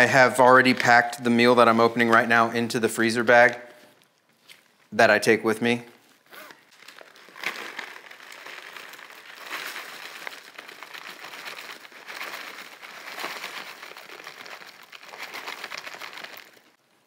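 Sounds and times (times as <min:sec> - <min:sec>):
plastic pouch crinkling: 0:06.0 - 0:16.8
dry food pouring into bag: 0:06.8 - 0:16.8.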